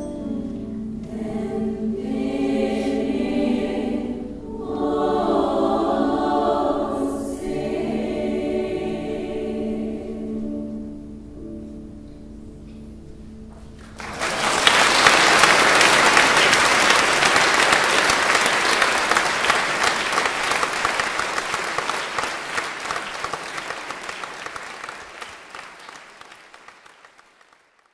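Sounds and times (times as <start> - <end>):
choir singing chord: 0.0 - 11.6
audience applauding: 13.8 - 27.9.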